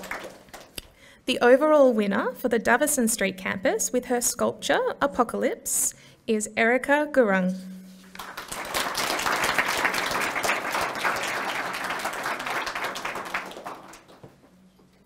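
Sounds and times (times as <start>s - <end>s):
audience applauding: 0.0s - 0.8s, 8.1s - 14.5s.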